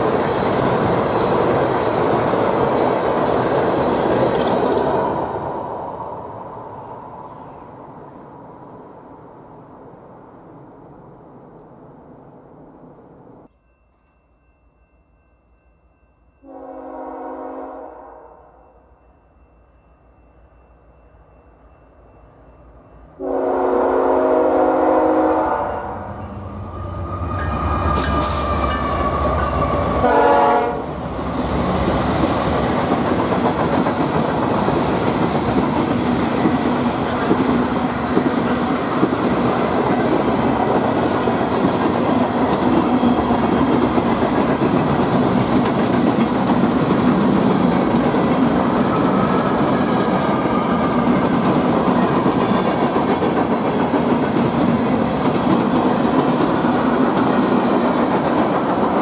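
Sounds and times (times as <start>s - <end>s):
train air horn: 16.4s - 18.7s, 23.2s - 26.4s, 27.2s - 31.0s
freight cars rumbling over rails: 26.0s - 59.0s.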